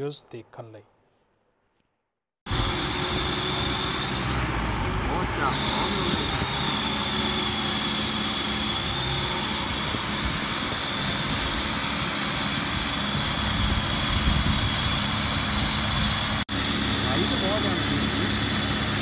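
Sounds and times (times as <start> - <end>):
tractor and baler droning: 2.5 - 19.0.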